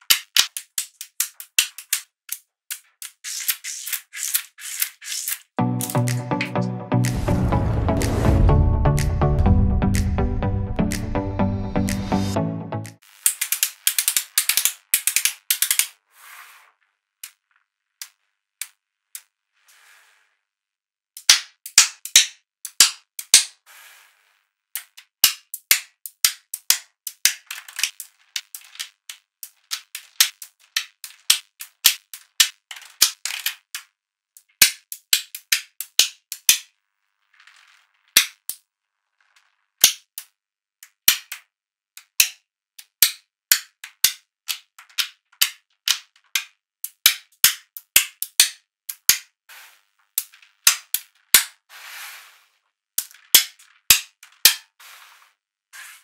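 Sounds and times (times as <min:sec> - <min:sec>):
magnetic balls clicking together: 0:00.0 - 0:06.5, 0:13.2 - 0:16.0, 0:21.2 - 0:23.6, 0:24.7 - 0:36.7, 0:37.5 - 0:38.6, 0:39.4 - 0:49.4, 0:50.1 - 0:51.6, 0:53.0 - 0:54.8.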